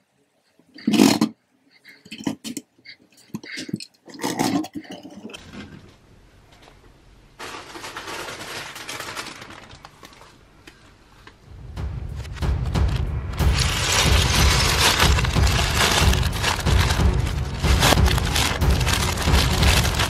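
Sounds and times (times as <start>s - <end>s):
plastic bricks rustling and scraping: 7.4s - 10.4s, 13.6s - 20.0s.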